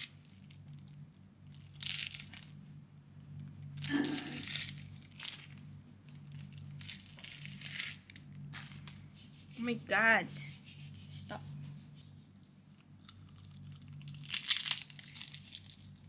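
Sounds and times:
plastic wrapper crinkling and tearing: 0.0s - 2.6s, 3.7s - 9.0s, 12.8s - 16.0s.

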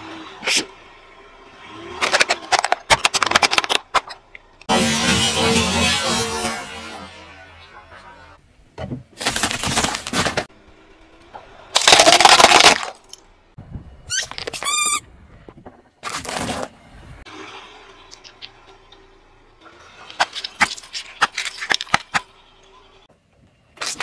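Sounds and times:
car tyre crushing brittle objects: 1.6s - 4.6s, 9.2s - 13.3s, 16.0s - 16.8s, 19.9s - 23.0s
plastic toy shattering: 2.0s - 4.2s, 11.7s - 13.2s.

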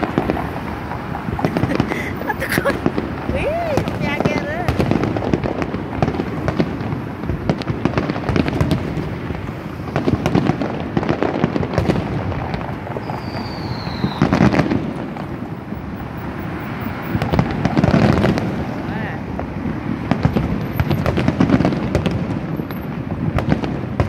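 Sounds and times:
fireworks bangs and crackles: 0.0s - 24.0s
high falling firework whistle: 13.0s - 14.6s.

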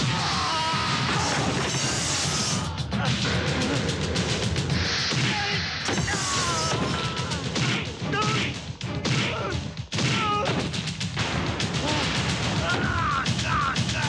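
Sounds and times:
punches thuds and crashes: 2.9s - 14.0s.

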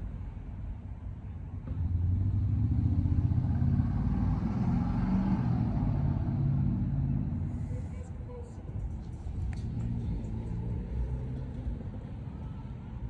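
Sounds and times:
vehicle engine driving by: 9.0s - 13.0s.

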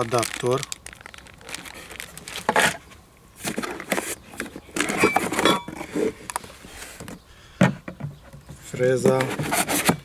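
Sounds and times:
metal tools clinking and knocking: 4.8s - 5.8s.

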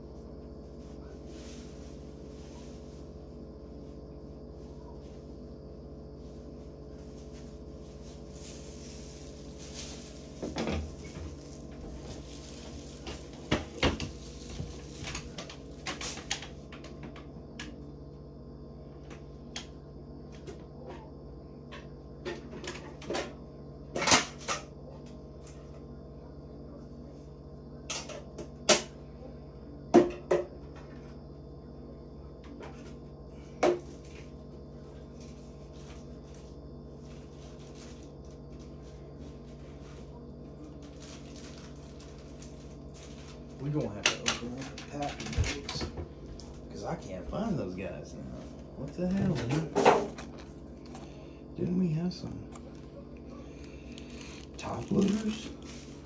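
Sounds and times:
steady low hum: 0.0s - 56.0s
objects knocking and clattering: 9.7s - 17.7s, 49.1s - 51.0s.

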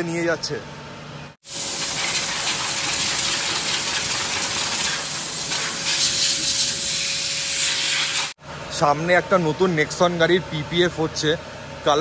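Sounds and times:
pressure washer spray hissing: 1.4s - 8.4s.

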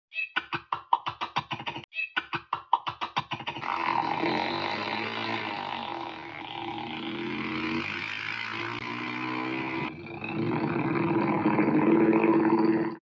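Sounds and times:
airplane engine starting: 3.6s - 9.9s.

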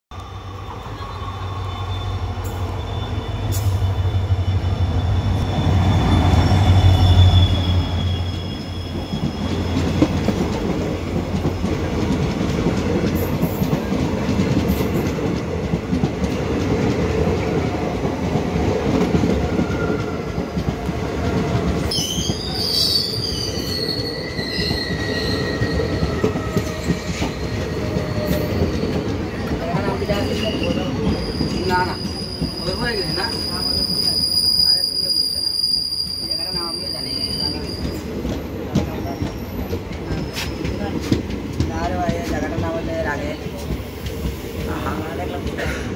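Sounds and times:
train wheels rumbling on rails: 0.2s - 45.9s
high wheel squeal: 0.4s - 10.1s, 21.9s - 38.1s.

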